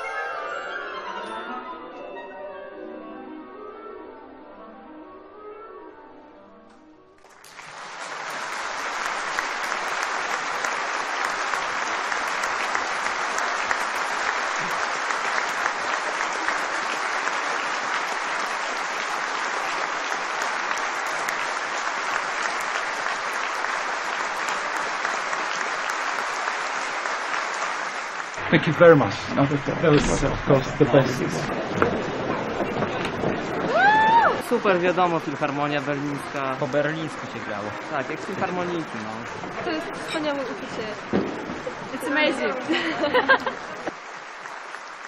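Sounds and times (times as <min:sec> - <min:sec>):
music: 0:00.0 - 0:14.0
audience applauding: 0:07.2 - 0:45.0.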